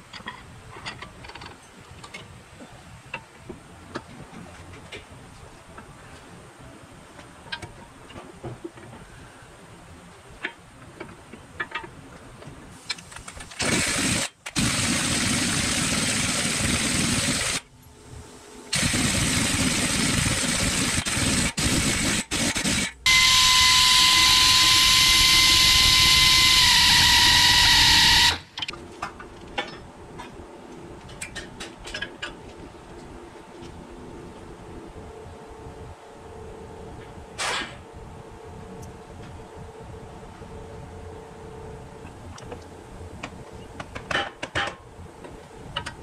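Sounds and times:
pneumatic impact wrench whine: 0:12.9 - 0:17.6, 0:18.7 - 0:28.7.

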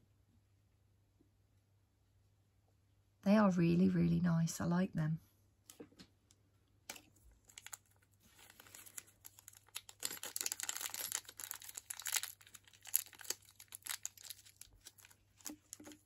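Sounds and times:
plastic bag crinkling: 0:06.9 - 0:16.0.

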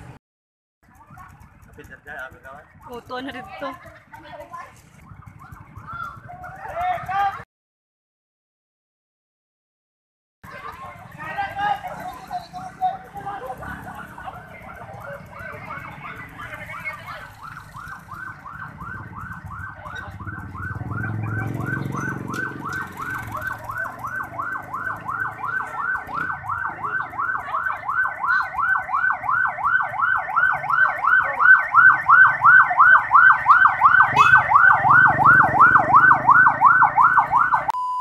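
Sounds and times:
passing vehicles rumbling: 0:00.0 - 0:00.2, 0:00.8 - 0:07.4, 0:10.4 - 0:37.7
ambulance siren yelping: 0:04.9 - 0:07.1, 0:11.0 - 0:37.8.

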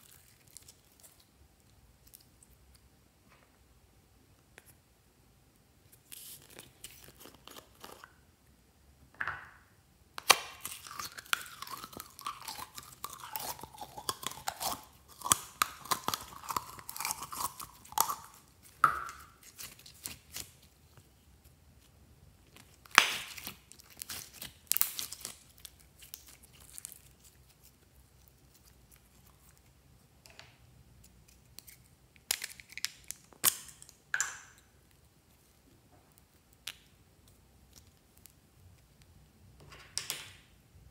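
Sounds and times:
slime crackling and popping: 0:10.2 - 0:20.7, 0:22.5 - 0:29.6.

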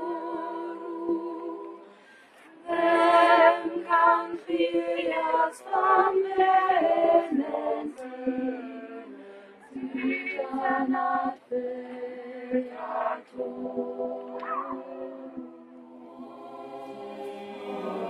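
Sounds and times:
choir singing a cappella: 0:00.0 - 0:18.0.

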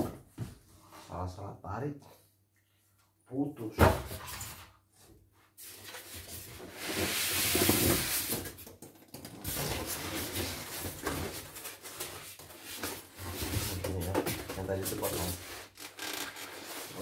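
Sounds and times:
styrofoam scraping on cardboard: 0:06.2 - 0:08.5.

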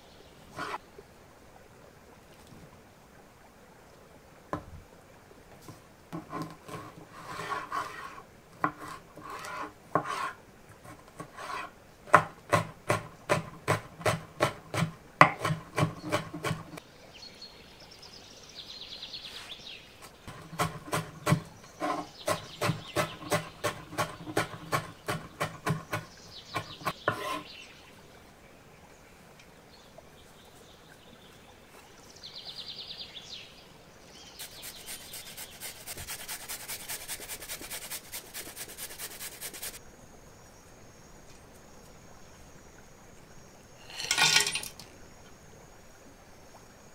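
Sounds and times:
chopping on a wooden surface: 0:12.1 - 0:16.8, 0:20.3 - 0:27.4.

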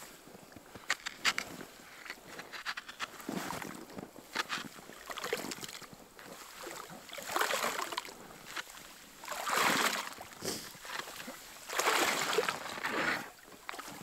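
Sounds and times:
knocks and scraping: 0:00.8 - 0:03.6
pole sloshing water and ice: 0:00.9 - 0:14.0.

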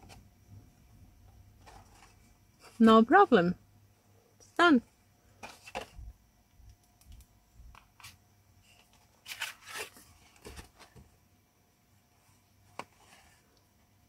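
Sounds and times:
paper rustling and scraping: 0:01.6 - 0:02.8, 0:08.0 - 0:11.0.

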